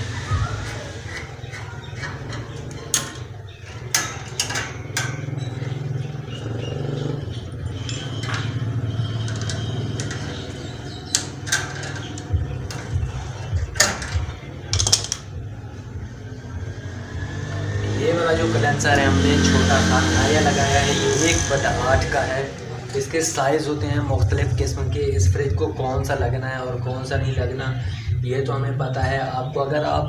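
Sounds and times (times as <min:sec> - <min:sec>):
pliers clicking on metal pipe: 0:13.8 - 0:15.3.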